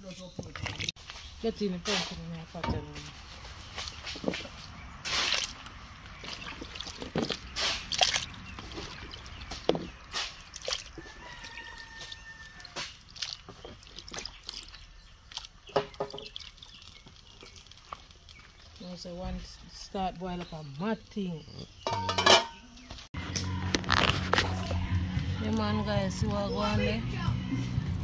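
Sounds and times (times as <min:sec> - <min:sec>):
pumpkin pieces splashing into soup: 0:06.2 - 0:18.8.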